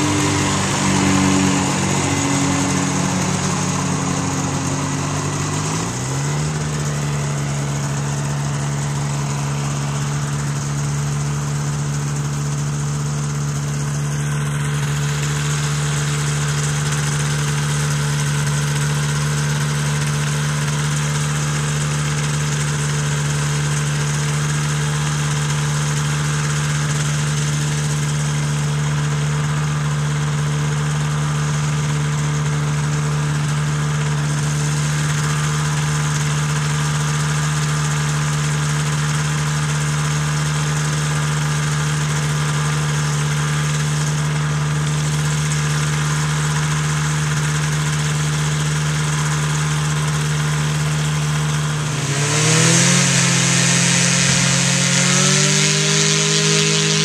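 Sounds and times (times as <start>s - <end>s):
powered parachute engine passing: 0.0s - 11.8s, 50.0s - 57.0s
powered parachute engine idling: 0.0s - 57.0s.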